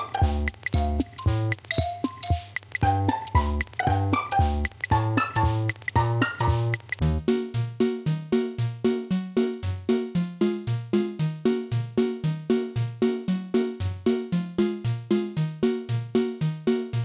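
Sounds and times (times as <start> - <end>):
bouncy synthesizer music: 0.0 - 17.0.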